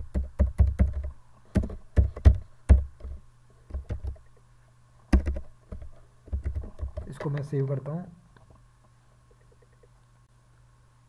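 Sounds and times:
computer keyboard typing: 0:00.0 - 0:04.4, 0:05.1 - 0:07.3.

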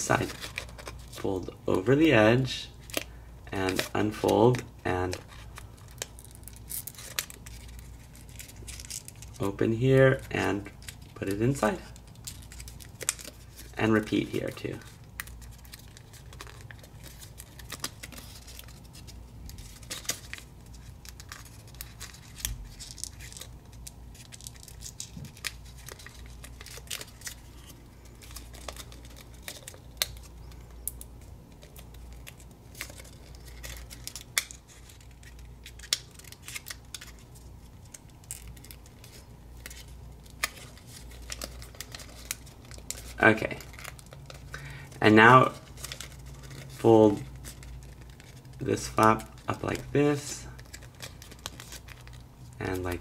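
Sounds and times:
paper crinkling and tapping: 0:00.0 - 0:01.3, 0:12.0 - 0:44.7, 0:45.5 - 0:49.9
low steady hum: 0:00.0 - 0:53.0.

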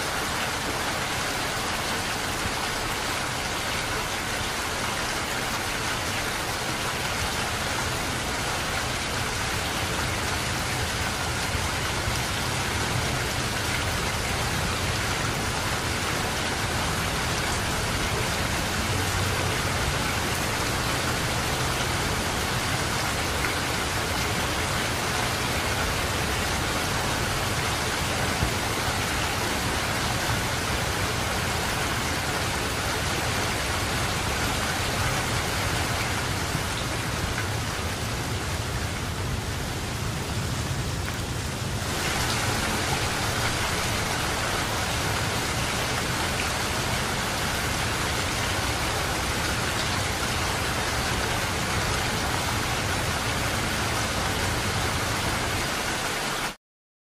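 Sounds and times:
steady rain falling: 0:00.0 - 0:56.6.

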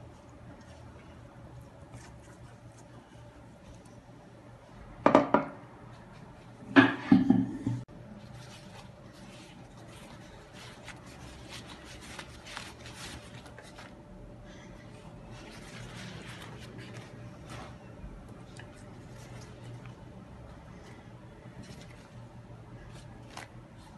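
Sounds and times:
pastry sheet crinkling rustle: 0:08.2 - 0:23.9.

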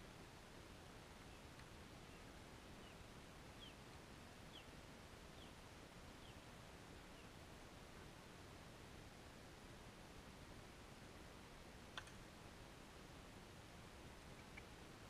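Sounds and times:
small bird calling: 0:14.2 - 0:14.8.

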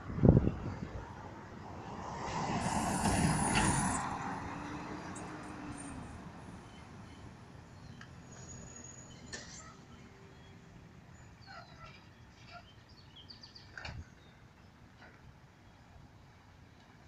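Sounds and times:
vehicle passing by: 0:00.0 - 0:07.6.

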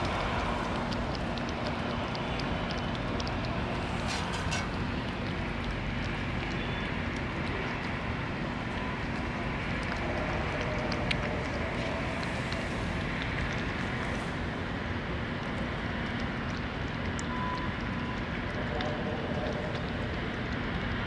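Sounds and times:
cat chewing clicks: 0:00.0 - 0:04.1
outdoor background rumble: 0:00.0 - 0:21.0.

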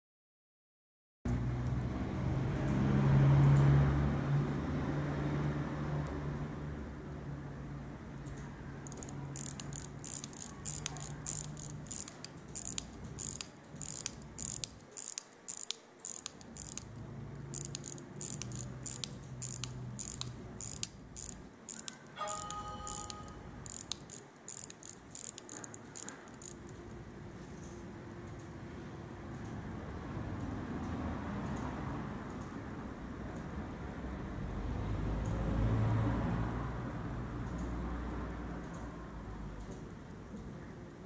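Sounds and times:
pocket watch winding clicks: 0:08.2 - 0:41.0.

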